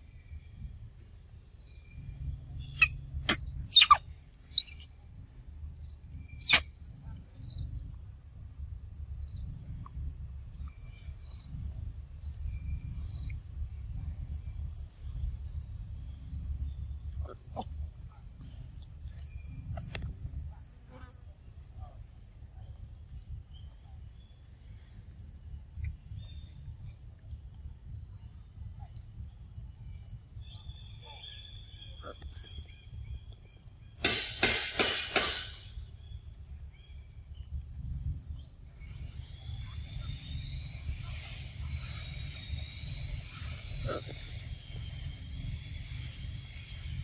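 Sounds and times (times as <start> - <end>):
insects chirring: 0.0 - 47.0.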